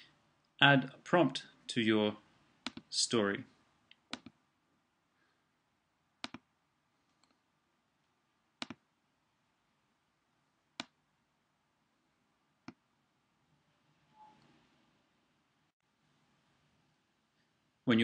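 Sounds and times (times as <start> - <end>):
computer mouse clicks: 2.6 - 2.9, 4.0 - 4.4, 6.2 - 6.4, 8.6 - 8.8.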